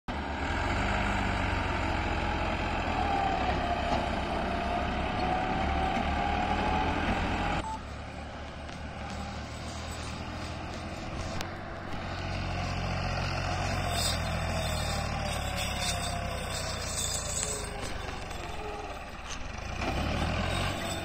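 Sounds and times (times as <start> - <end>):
tractor engine working hard: 0.1 - 21.0
wavering whine: 7.6 - 19.4.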